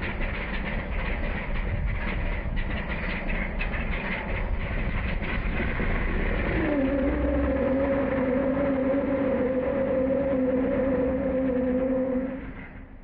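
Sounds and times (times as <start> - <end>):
tyres spinning on asphalt: 0.0 - 13.0
engine revving: 5.1 - 13.0.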